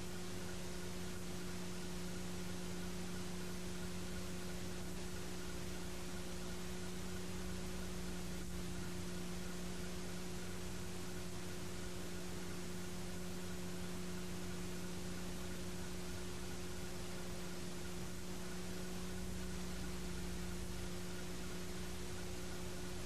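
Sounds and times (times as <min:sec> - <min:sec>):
electrical hum: 0:00.0 - 0:23.0.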